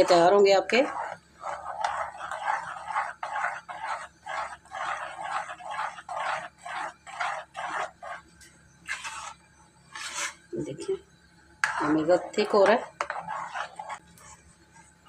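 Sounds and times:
spatula scraping batter in pan: 0.0s - 10.5s, 11.6s - 14.5s.

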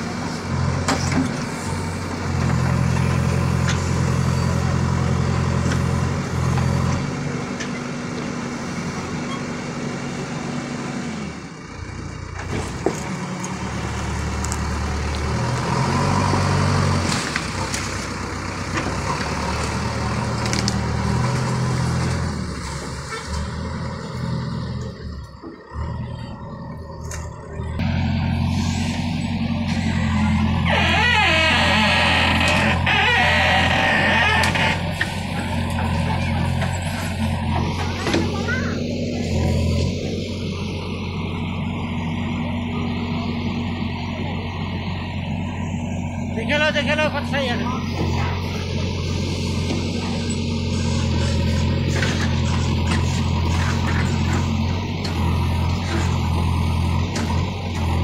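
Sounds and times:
diesel engine under load: 0.0s - 58.0s.

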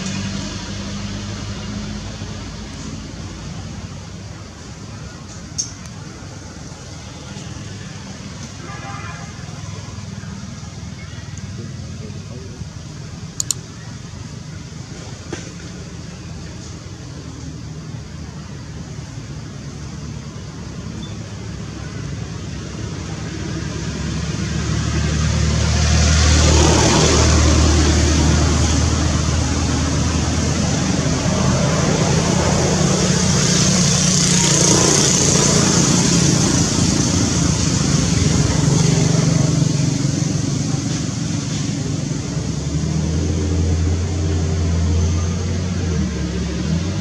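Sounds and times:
rushing noise: 20.2s - 47.0s
vehicle engine running: 21.6s - 47.0s.

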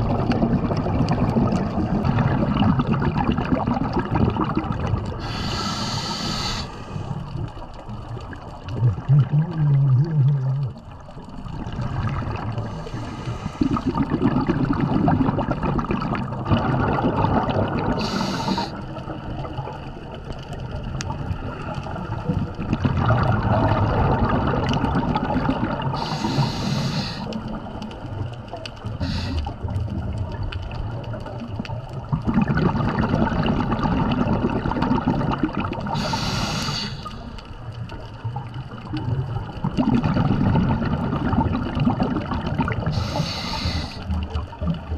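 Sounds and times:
exhaled bubbles underwater: 0.0s - 44.9s
regulator inhalation hiss: 5.2s - 7.1s, 18.0s - 18.8s, 26.0s - 27.3s, 29.0s - 29.5s, 35.9s - 37.3s, 42.9s - 44.1s.

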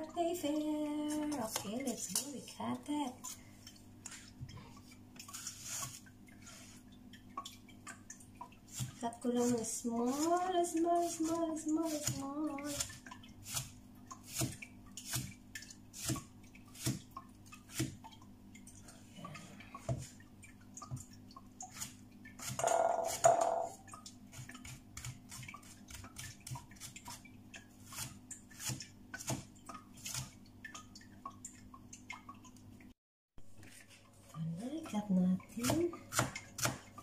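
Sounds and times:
knife chopping on cutting board: 22.5s - 23.8s, 35.6s - 36.9s.

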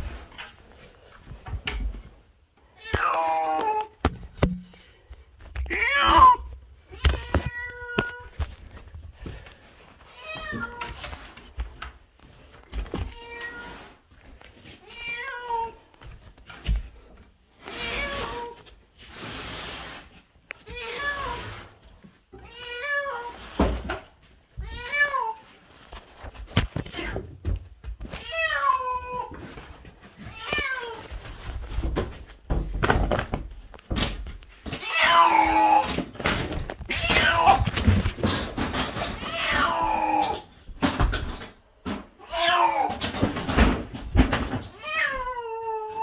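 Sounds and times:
rustling: 0.0s - 39.8s
cat meowing: 13.1s - 13.9s, 36.9s - 37.7s.

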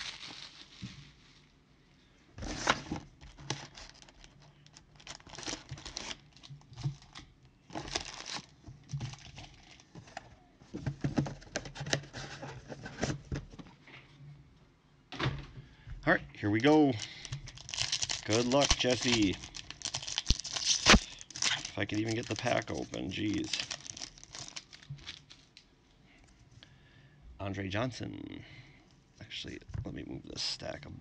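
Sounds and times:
plastic wrapping crinkling and tearing: 0.0s - 1.3s, 2.4s - 9.9s, 16.5s - 25.6s.

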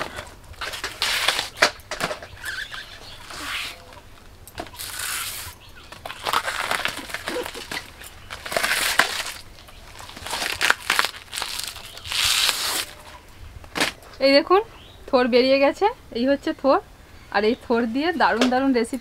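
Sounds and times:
plant fibres tearing and crunching: 4.7s - 13.1s.

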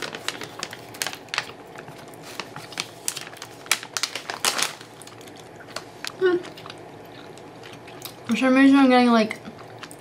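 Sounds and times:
plastic bag crinkling: 0.0s - 7.5s.

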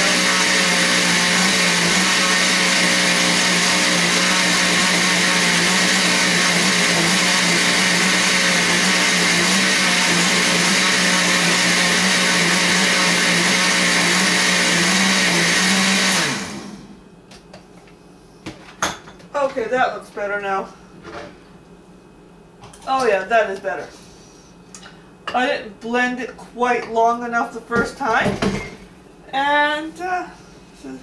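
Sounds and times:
blender running: 0.0s - 17.0s.

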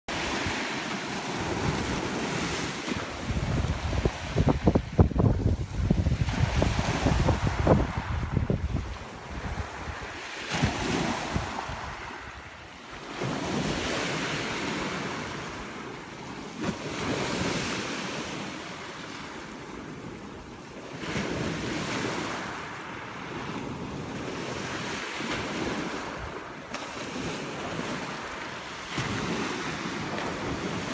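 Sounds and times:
waves breaking on pebble beach: 0.1s - 30.9s
wind buffeting microphone: 0.2s - 12.6s.

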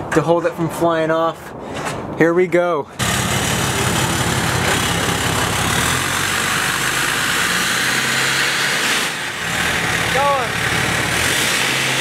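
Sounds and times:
diesel engine idling: 3.0s - 12.0s.

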